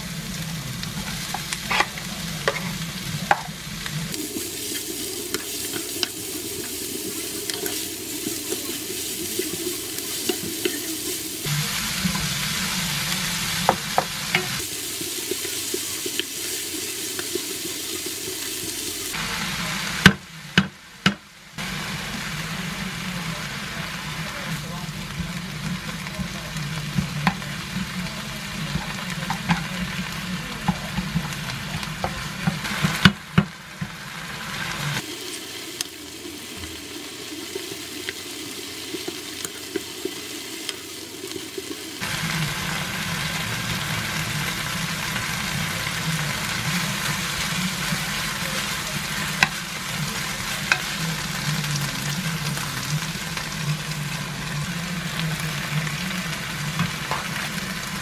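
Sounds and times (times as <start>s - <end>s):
food sizzling in a frying pan: 0.0s - 58.0s
spatula scraping a pan: 0.9s - 3.6s
knocks on a pan: 20.0s - 21.2s.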